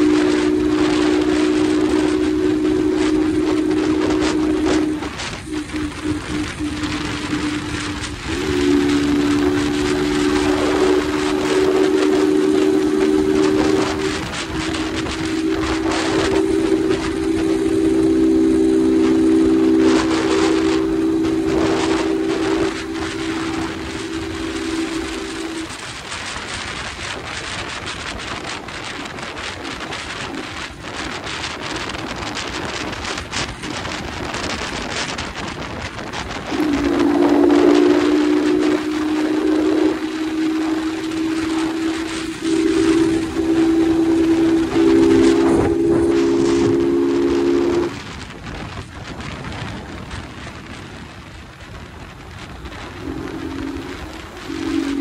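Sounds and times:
road noise: 0.0s - 27.4s
motorcycle engine hum: 0.0s - 55.0s
wind buffeting microphone: 0.0s - 55.0s.

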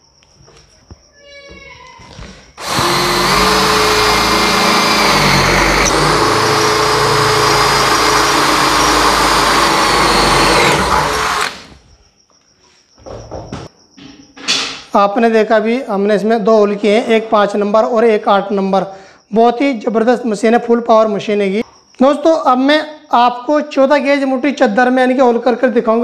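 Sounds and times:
drill grinding metal: 2.6s - 11.8s
drill motor whine: 2.6s - 11.8s.

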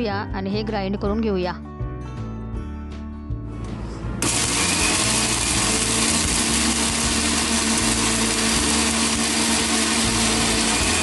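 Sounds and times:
mixer grinder whirring: 4.2s - 11.0s.

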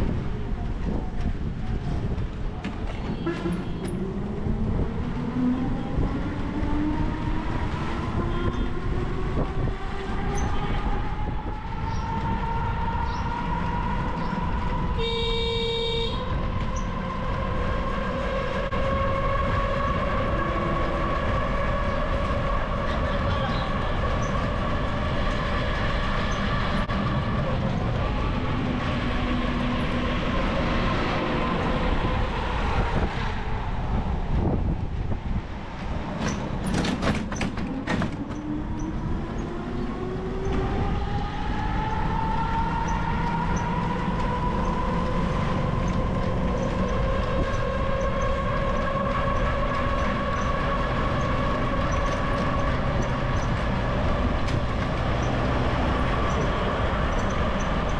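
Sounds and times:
vehicle ride rumble and rattle: 0.0s - 57.9s
clatter of knocks: 36.2s - 38.5s.

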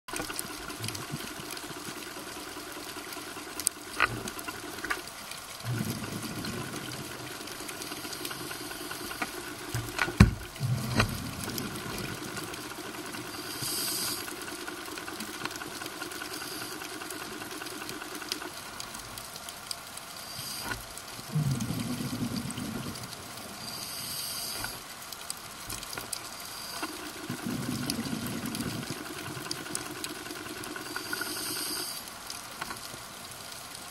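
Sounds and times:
exhaled bubbles bubbling: 0.2s - 18.6s, 21.2s - 23.8s, 26.8s - 31.8s
regulator air hiss: 13.2s - 14.5s, 23.6s - 24.8s, 30.8s - 32.0s.

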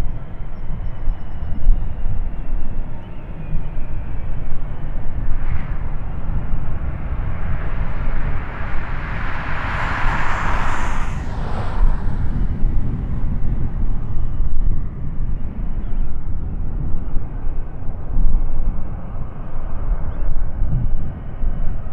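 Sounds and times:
jet engine rumble: 2.0s - 21.9s
jet rush: 5.1s - 14.6s.

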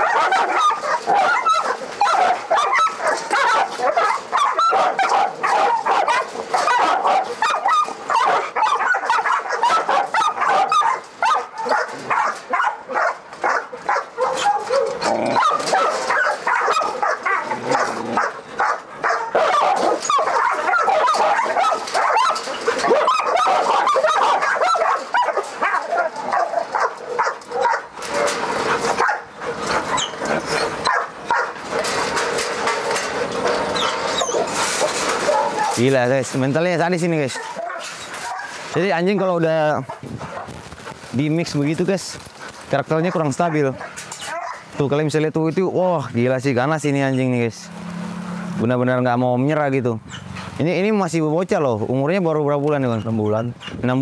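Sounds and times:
dog barking and yelping: 0.0s - 35.9s, 37.2s - 40.6s, 43.0s - 44.8s.

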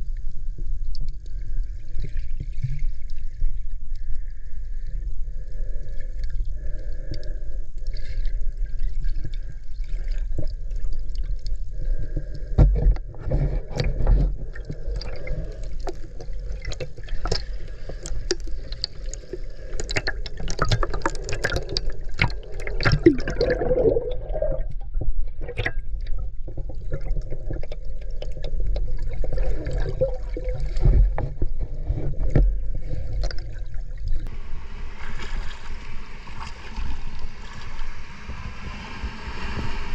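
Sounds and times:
water gurgling and sloshing: 0.0s - 39.9s
low rumble: 10.5s - 39.9s
clicks and crackles: 12.2s - 33.6s.

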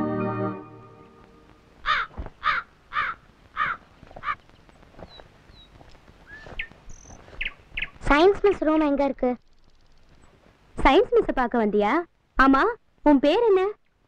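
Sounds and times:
keyboard music: 0.0s - 1.7s
crow cawing: 1.8s - 4.4s
faint small bird chirps: 4.3s - 8.0s.

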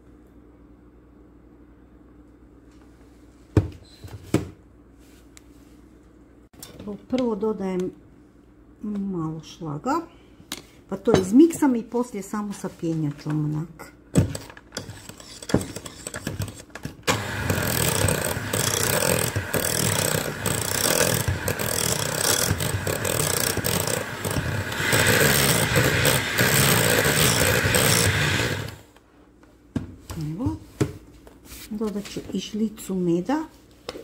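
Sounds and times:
electric hand mixer whipping cream: 15.0s - 28.8s.

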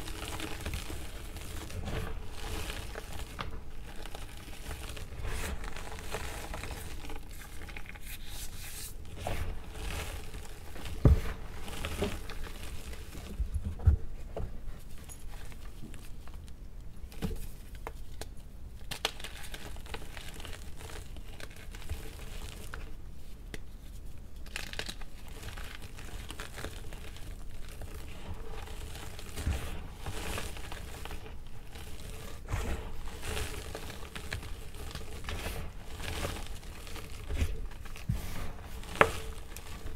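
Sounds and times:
chalk crunching and crackling: 0.0s - 13.5s, 24.4s - 39.9s.

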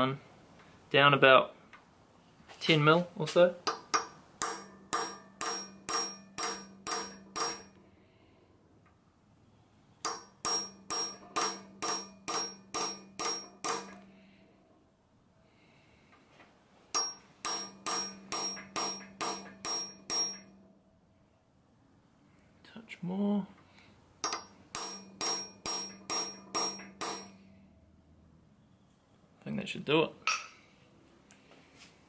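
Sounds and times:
hammer tapping steel punch: 3.6s - 7.8s, 10.0s - 14.1s, 16.9s - 20.6s, 24.2s - 27.4s, 30.3s - 30.6s.

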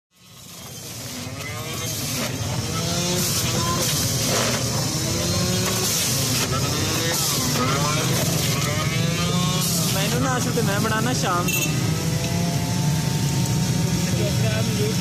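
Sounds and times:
juicer motor running: 0.2s - 15.0s
background voices: 1.4s - 11.6s.

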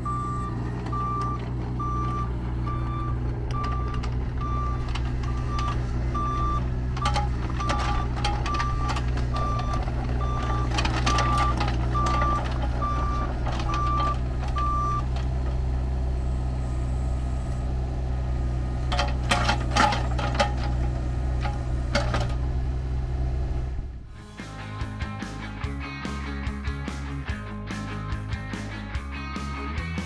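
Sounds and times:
backup alarm beeping: 0.0s - 15.1s
hydraulics working: 0.0s - 24.4s
diesel engine running: 0.0s - 30.0s.

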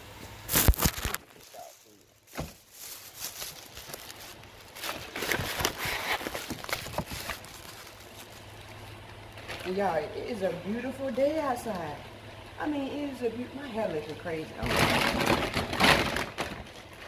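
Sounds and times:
clothing rustling on microphone: 0.5s - 9.6s.

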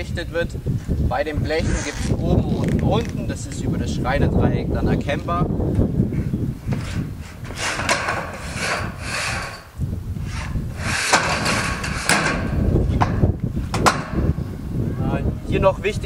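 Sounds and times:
metal roof sheet scraping: 6.6s - 14.2s.

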